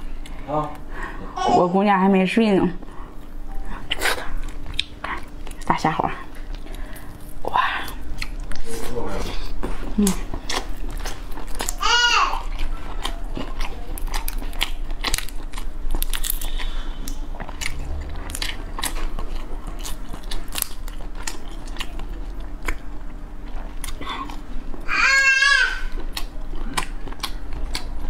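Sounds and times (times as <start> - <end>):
chewing and crunching prawn: 3.8 - 24.9, 25.7 - 28.0.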